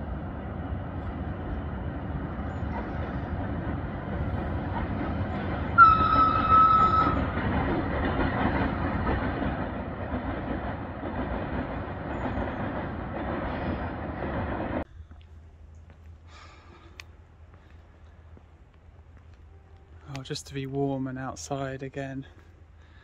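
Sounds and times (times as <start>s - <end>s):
train wheels rumbling on track: 0.0s - 14.9s.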